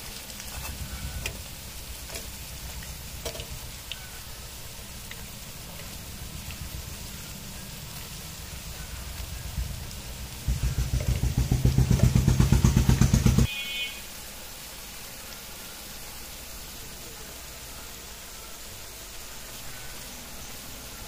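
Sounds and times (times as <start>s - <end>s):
small engine pulsing: 0.0s - 14.0s.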